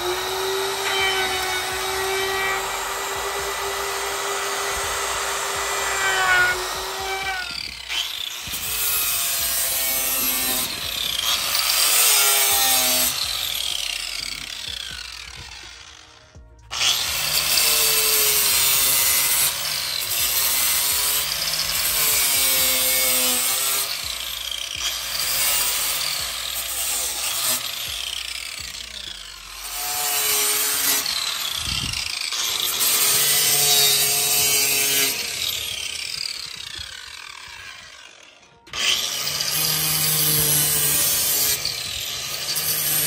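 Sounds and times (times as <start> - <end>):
angle grinder sanding wood: 0.0 - 16.1.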